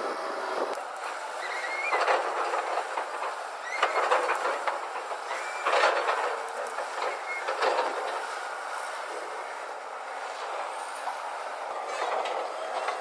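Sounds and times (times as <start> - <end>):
lorries rattling and clanking: 0.0 - 13.0
short high squeals: 1.4 - 2.0, 3.6 - 4.0, 7.1 - 7.5.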